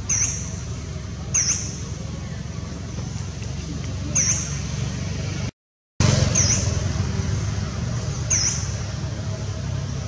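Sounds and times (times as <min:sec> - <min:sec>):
high-pitched squeaky chirp: 0:00.0 - 0:00.6, 0:01.3 - 0:01.8, 0:04.1 - 0:04.6, 0:06.2 - 0:06.8, 0:08.2 - 0:08.8.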